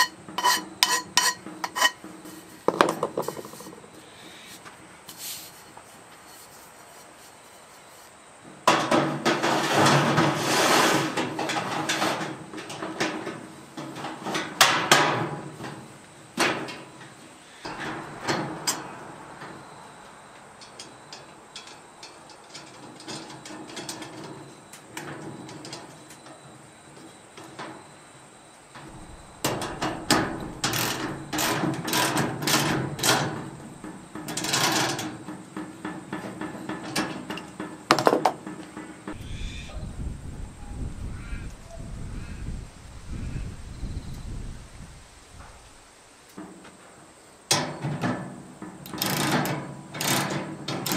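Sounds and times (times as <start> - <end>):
steel pipes clattering: 0.0 - 4.0, 8.7 - 26.4, 28.7 - 39.2.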